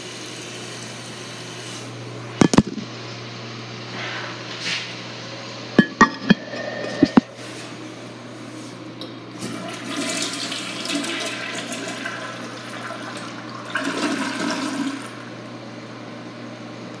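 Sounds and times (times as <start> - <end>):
toilet flushing: 0.0 - 1.9, 9.3 - 15.6.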